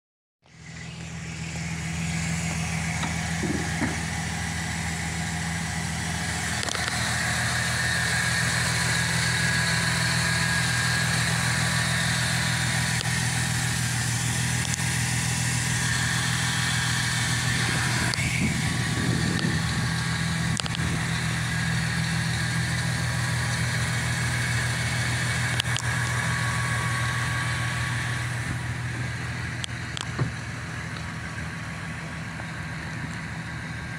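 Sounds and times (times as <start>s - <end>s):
pickup truck engine idling: 0.5s - 33.9s.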